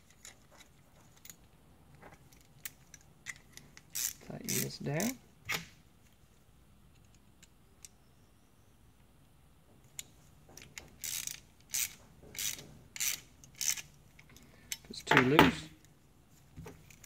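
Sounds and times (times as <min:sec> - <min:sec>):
metal parts clicking and knocking: 0:00.0 - 0:05.1, 0:09.8 - 0:15.9.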